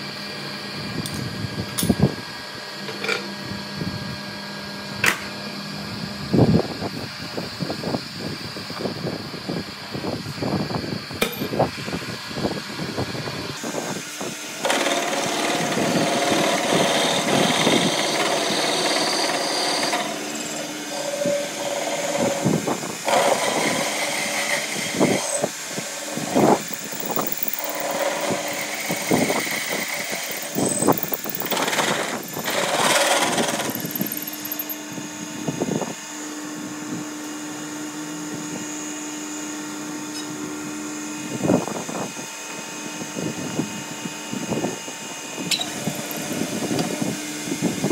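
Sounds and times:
metal lathe cutting steel: 0:14.4 - 0:34.9, 0:45.5 - 0:47.0
steady hum: 0:25.0 - 0:35.9.

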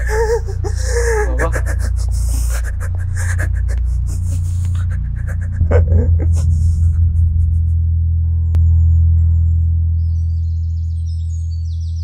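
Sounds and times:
man crying and sobbing: 0:00.0 - 0:07.9
deep music tone: 0:00.0 - 0:12.0
low musical drone: 0:00.0 - 0:12.0.

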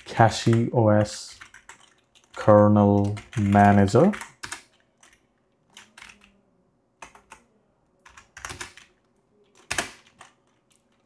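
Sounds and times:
typing on a keyboard: 0:00.0 - 0:06.4, 0:07.0 - 0:11.0.

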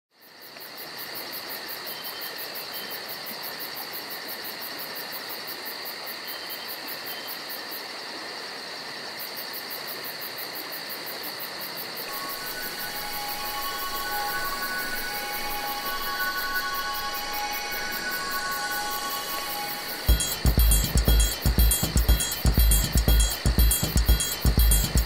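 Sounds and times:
insects trilling: 0:00.2 - 0:25.0
fast pulsing insect chirp: 0:12.1 - 0:25.0.

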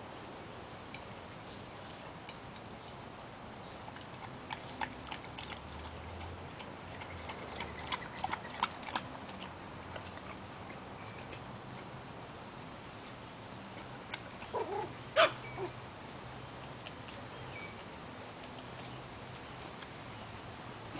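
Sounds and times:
dog lapping water: 0:03.9 - 0:11.4.

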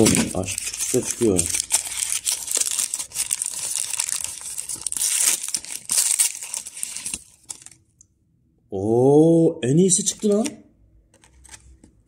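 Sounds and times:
packaging crinkling: 0:00.0 - 0:07.8.

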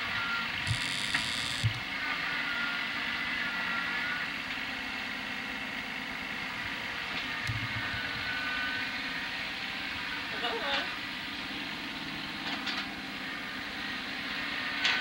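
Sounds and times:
distant tractor engine running: 0:00.0 - 0:15.0
faint high whine: 0:00.2 - 0:01.8.

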